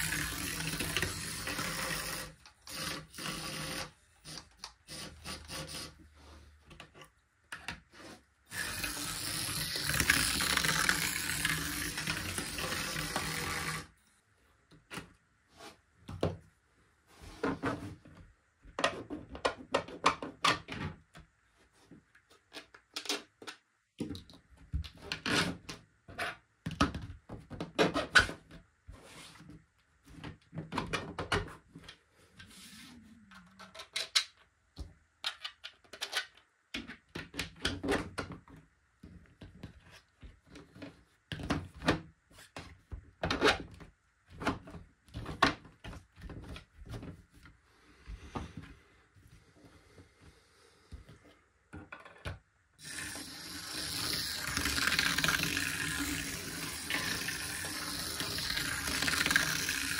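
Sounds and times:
plastic tiles clacking and scraping: 0:08.5 - 0:13.9, 0:33.4 - 0:34.5, 0:35.2 - 0:37.9, 0:51.8 - 0:59.9.

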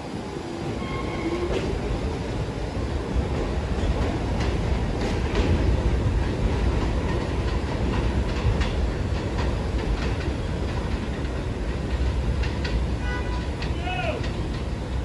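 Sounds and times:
train rumbling on elevated track: 0:00.0 - 0:15.0
wheels clicking over rail joints: 0:03.2 - 0:15.0.

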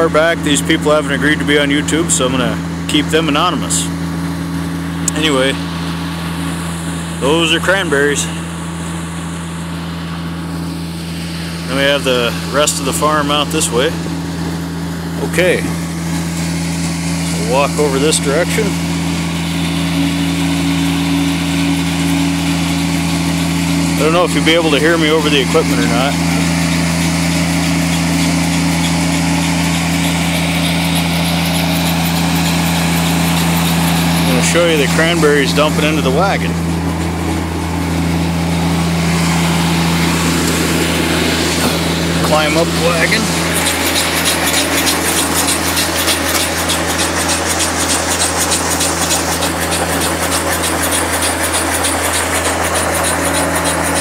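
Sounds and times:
engine droning steadily: 0:00.0 - 0:54.0.

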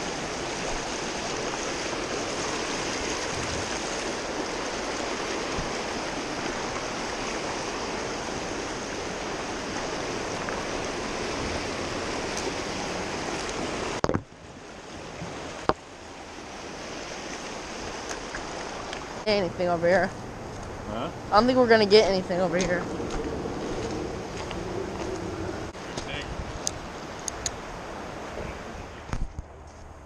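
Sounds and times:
river rushing over rocks: 0:00.0 - 0:19.2.

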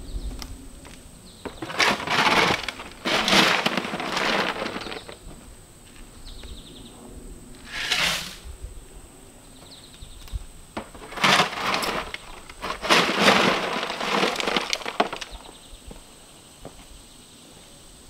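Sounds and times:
shovel scraping dirt: 0:01.5 - 0:05.2, 0:07.6 - 0:08.5, 0:10.8 - 0:15.4
faint insect chirps: 0:03.8 - 0:12.7, 0:13.9 - 0:18.0.

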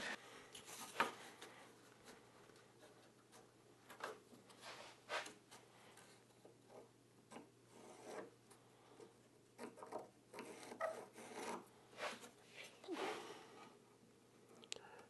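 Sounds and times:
pencil scratching on paper: 0:07.7 - 0:08.3, 0:09.6 - 0:12.3.

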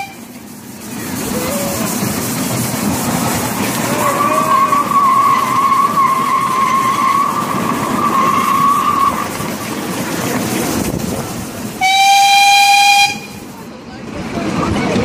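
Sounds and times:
steam train whistle toot: 0:00.0 - 0:00.3, 0:03.9 - 0:09.3, 0:11.8 - 0:13.4
rumble of the ride: 0:00.0 - 0:15.0
miniature train wheels squealing: 0:03.9 - 0:09.6.

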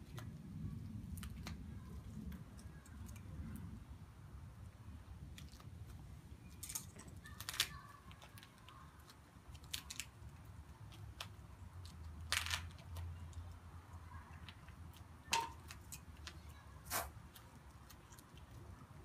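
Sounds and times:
duct tape tearing: 0:16.8 - 0:17.1.

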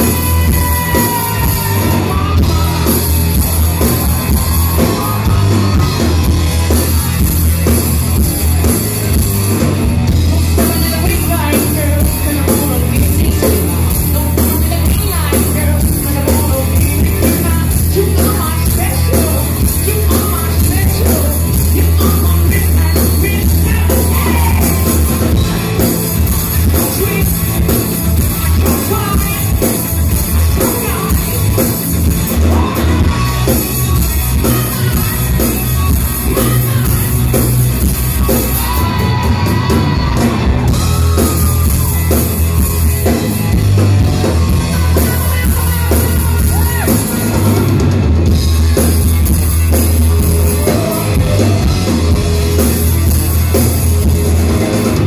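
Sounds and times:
person singing: 0:00.0 - 0:07.4, 0:10.5 - 0:25.3, 0:26.6 - 0:31.6, 0:32.3 - 0:37.5, 0:38.1 - 0:42.1, 0:44.2 - 0:47.7, 0:50.1 - 0:52.7
drum beat: 0:00.0 - 0:55.0
heavy bass: 0:00.0 - 0:55.0
live rock band playing: 0:00.0 - 0:55.0.

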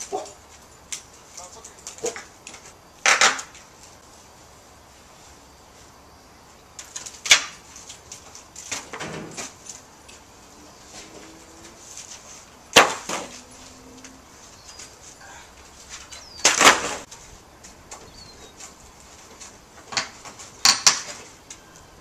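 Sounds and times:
wood cracking and snapping: 0:06.8 - 0:10.2, 0:12.7 - 0:13.4, 0:16.0 - 0:17.1, 0:19.8 - 0:21.3
wood crashing: 0:11.8 - 0:13.5, 0:15.9 - 0:17.2.

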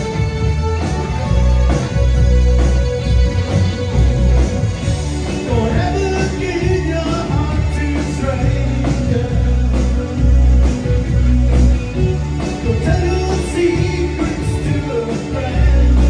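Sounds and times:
bass guitar: 0:00.0 - 0:16.0
drum kit beat: 0:00.0 - 0:16.0
electric guitar: 0:00.0 - 0:16.0
man singing: 0:05.2 - 0:10.6, 0:12.5 - 0:16.0.

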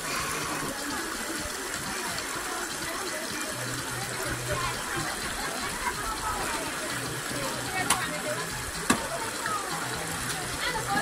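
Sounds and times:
faint voices: 0:00.0 - 0:11.0.

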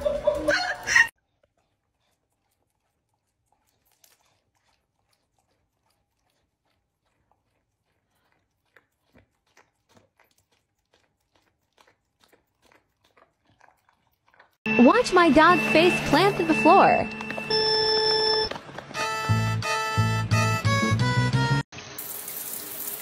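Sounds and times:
dog lapping from a bowl: 0:01.2 - 0:14.6.

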